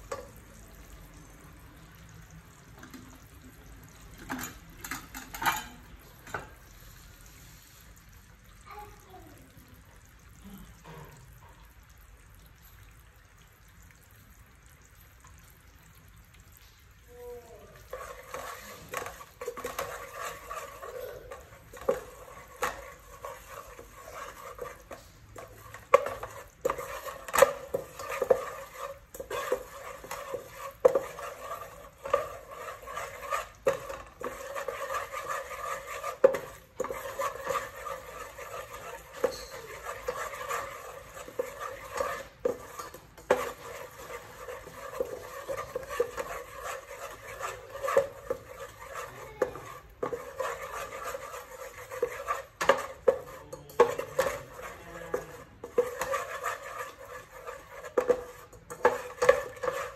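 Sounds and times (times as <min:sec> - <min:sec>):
wooden spatula scraping a metal pot: 0:00.0 - 0:00.4, 0:02.7 - 0:06.7, 0:17.4 - 0:59.9
liquid bubbling: 0:09.5 - 0:55.9.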